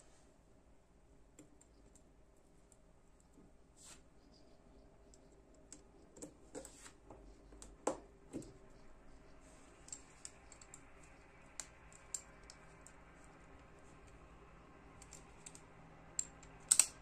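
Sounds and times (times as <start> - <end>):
folding knife clicking: 16.2 - 17.0.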